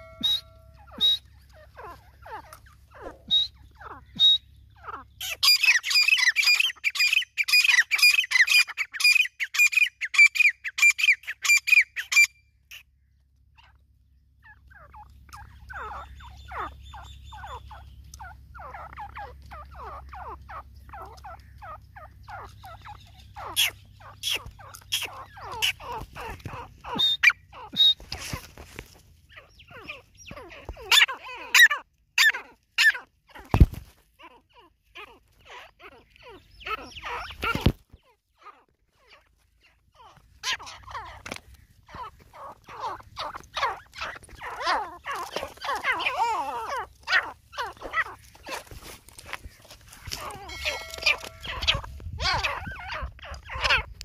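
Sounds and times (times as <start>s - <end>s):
bird shrill repeated calls: 0.0s - 13.8s, 14.4s - 28.6s, 29.2s - 54.0s
bird soft clucking: 14.8s - 32.3s, 35.2s - 38.0s, 39.7s - 54.0s.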